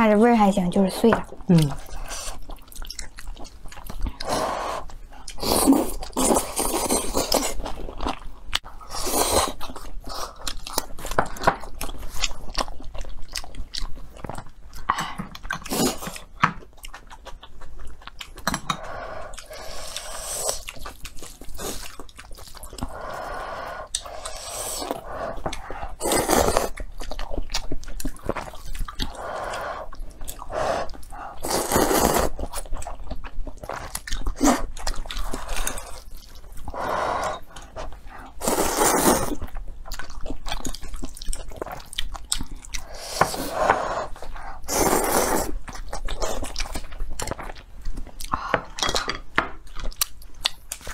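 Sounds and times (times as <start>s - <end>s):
wet chewing and crunching: 0.7s - 50.9s
noodle slurps: 29.1s - 32.4s, 38.4s - 39.4s.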